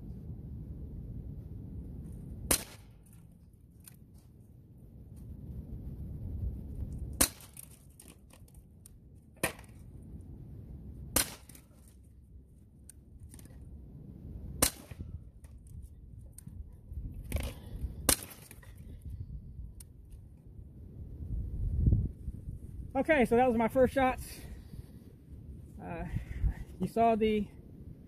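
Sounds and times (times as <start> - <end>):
air pistol shots: 2.5 - 3.0, 11.1 - 11.6.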